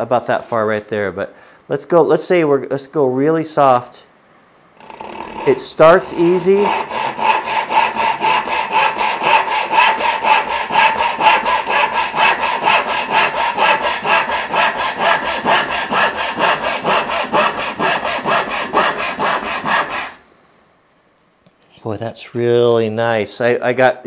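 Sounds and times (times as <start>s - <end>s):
handsaw cutting wood: 4.8s - 20.2s.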